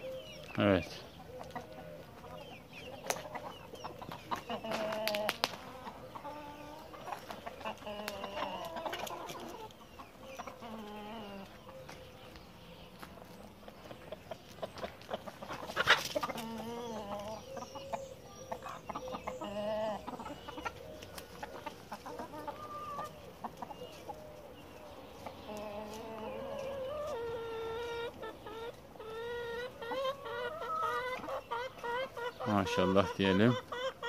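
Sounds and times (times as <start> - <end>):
chickens clucking: 0.0 - 34.0.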